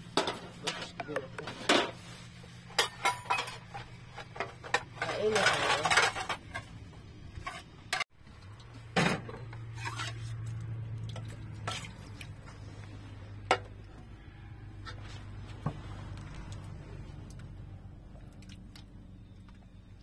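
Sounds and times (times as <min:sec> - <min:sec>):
low steady hum: 0:00.0 - 0:20.0
utensils clinking against dishes: 0:02.7 - 0:06.7.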